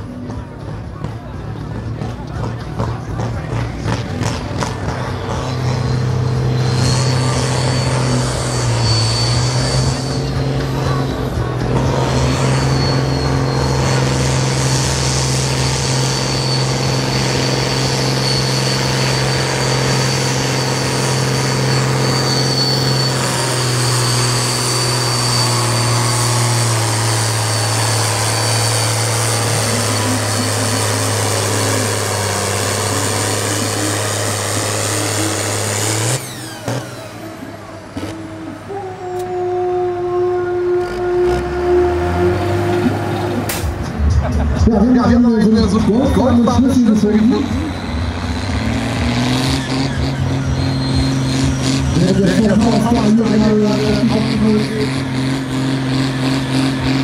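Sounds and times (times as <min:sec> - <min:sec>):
tractor diesel engine labouring: 0:00.0 - 0:57.0
thin high whistle: 0:06.5 - 0:10.4, 0:15.5 - 0:31.9.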